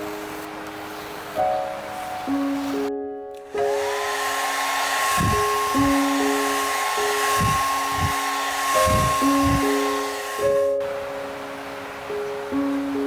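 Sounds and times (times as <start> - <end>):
hair dryer blowing: 3.5 - 10.8.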